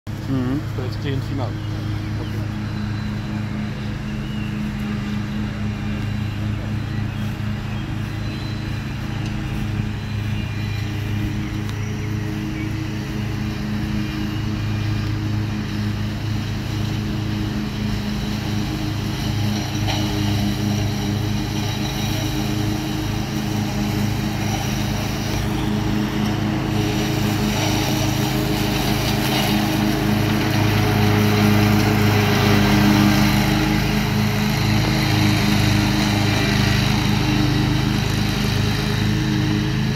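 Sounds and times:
ride-on mower engine hum: 0.1 - 39.9.

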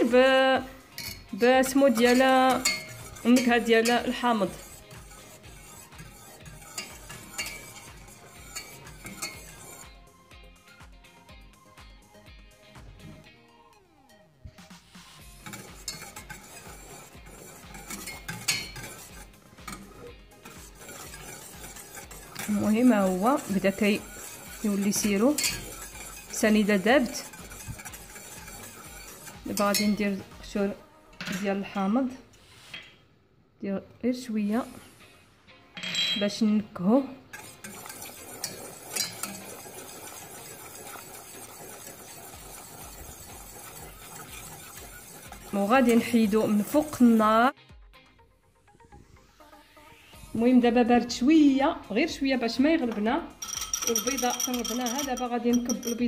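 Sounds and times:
whisk scraping metal saucepan: 0.0 - 10.0, 14.9 - 31.6, 37.3 - 47.5, 52.3 - 56.0.

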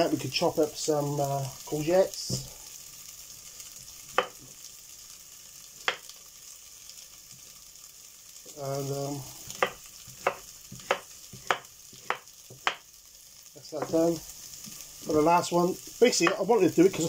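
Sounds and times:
onions sizzling in pan: 0.0 - 17.0
knife chopping on wooden board: 4.2 - 4.4, 5.9 - 6.1, 9.5 - 12.8.

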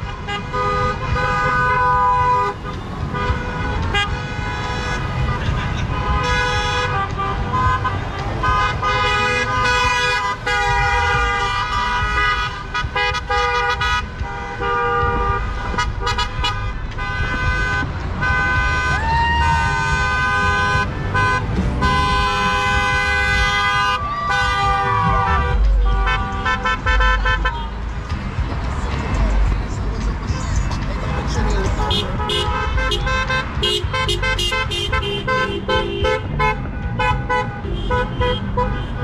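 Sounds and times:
car horns honking: 0.0 - 29.5, 30.2 - 39.0
rumble of engines: 0.0 - 39.0.

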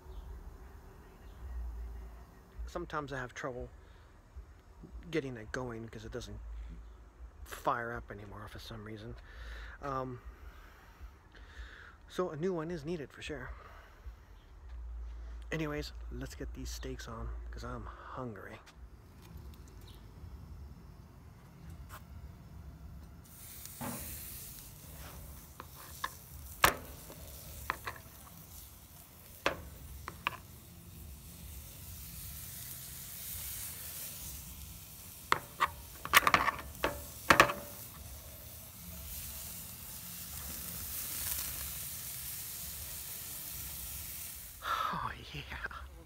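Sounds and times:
steaks sizzling on grill: 19.0 - 44.8
tongs clicking against grill grate: 23.3 - 31.0, 35.1 - 37.9.

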